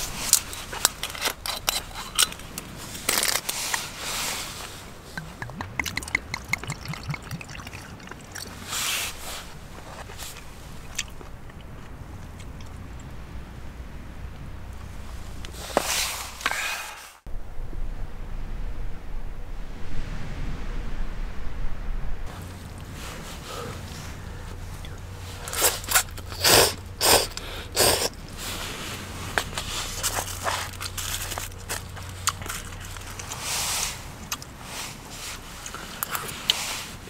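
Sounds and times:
steady rushing noise: 4.2 - 10.9, 17.2 - 25.4
crinkling and rustling handling: 28.3 - 37.0.

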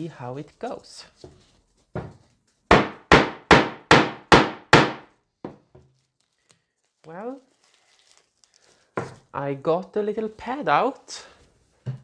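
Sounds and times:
mallet striking hole punch: 2.7 - 5.0.

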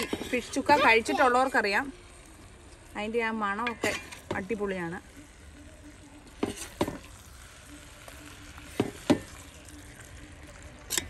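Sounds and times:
metal spoon scraping pot: 0.0 - 0.8, 3.6 - 4.5
curry sizzling: 0.0 - 11.0.

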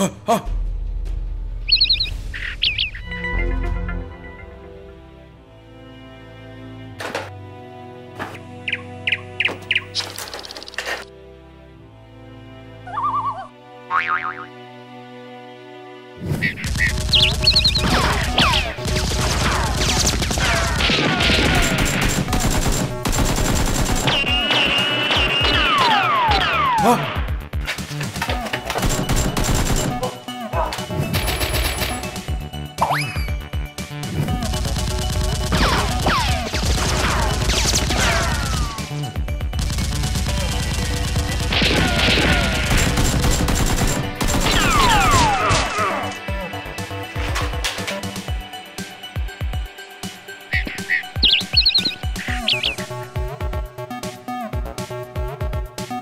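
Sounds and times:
rapid automatic gunfire effects: 16.6 - 25.9, 28.8 - 30.0, 34.4 - 38.9, 39.5 - 45.3.

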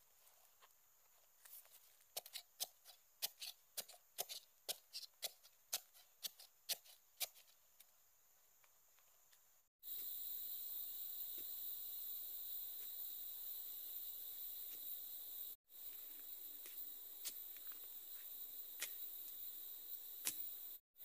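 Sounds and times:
high insect drone: 9.8 - 20.8.

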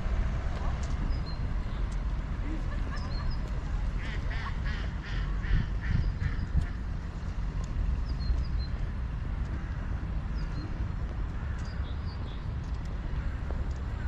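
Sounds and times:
steady low rumble: 0.0 - 14.0.

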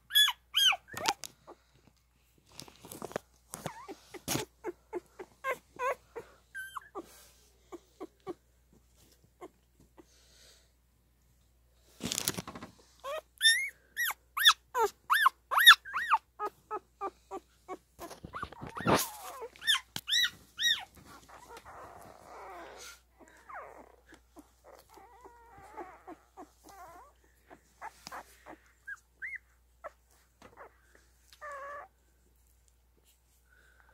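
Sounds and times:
puppies squealing and whimpering: 0.0 - 1.2, 3.6 - 8.4, 13.0 - 30.8
puppies grunting: 16.4 - 19.8.

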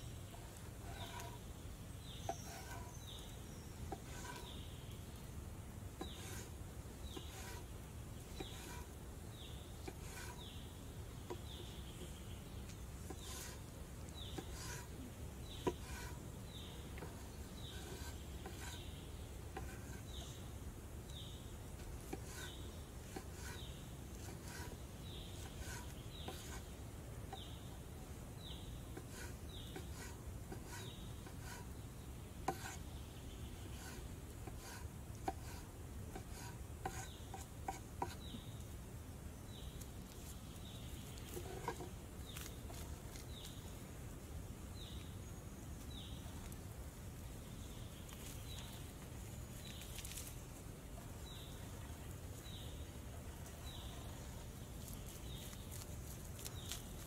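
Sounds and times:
knife slicing tomato on board: 32.5 - 32.8.

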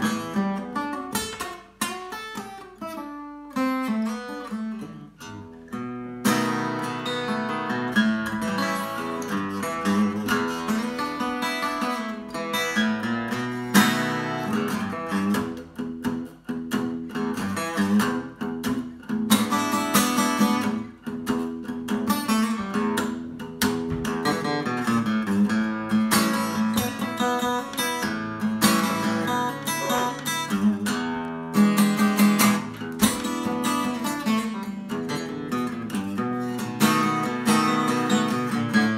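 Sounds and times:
acoustic guitar blues: 0.0 - 38.9.

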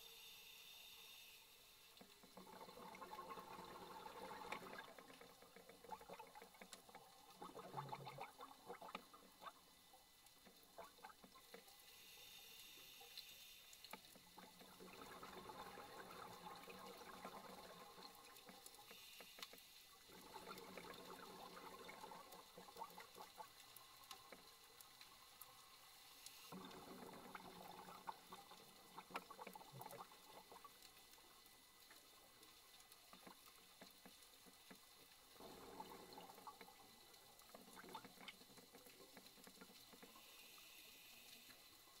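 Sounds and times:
exhaled bubbles: 2.2 - 9.6, 10.6 - 11.4, 14.2 - 19.0, 20.0 - 24.5, 26.3 - 32.4, 35.3 - 40.2.

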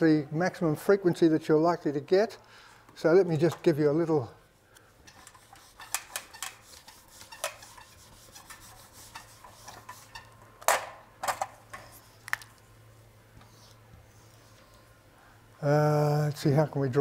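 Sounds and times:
marker drawing on whiteboard: 5.1 - 10.2
eraser wiping whiteboard: 5.1 - 10.3.

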